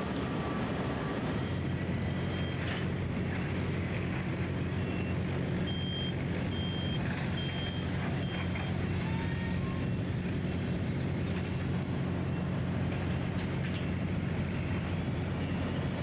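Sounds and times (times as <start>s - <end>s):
truck engines rumbling: 0.0s - 16.0s
reversing alarm beeping: 0.6s - 2.9s, 4.6s - 10.0s.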